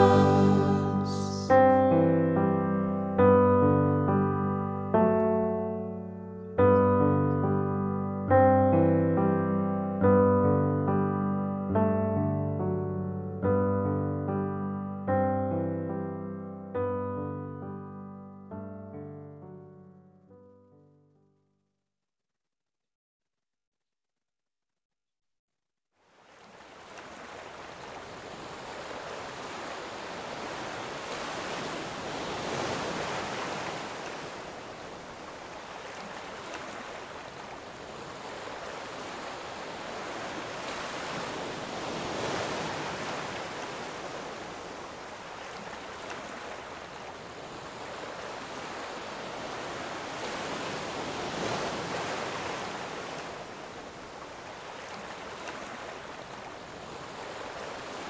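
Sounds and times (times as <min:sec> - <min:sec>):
ocean waves washing in: 0:00.0 - 0:05.8, 0:26.0 - 0:58.0.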